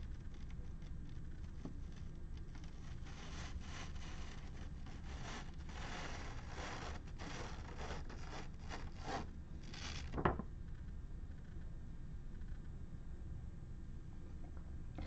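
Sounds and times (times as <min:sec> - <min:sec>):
faint low hum: 0:00.0 - 0:15.0
paper rustling on a tabletop: 0:01.5 - 0:10.4.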